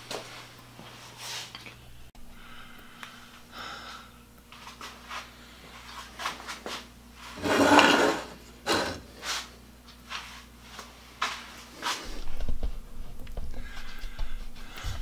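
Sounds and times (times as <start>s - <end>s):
scrape on workbench: 7.2s - 9.5s.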